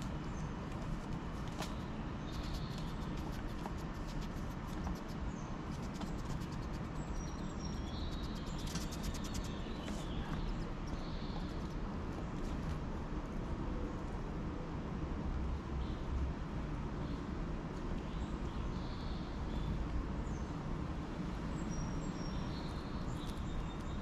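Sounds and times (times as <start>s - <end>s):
squirrel clicking on feeder: 2.3s - 7.0s, 8.0s - 10.7s.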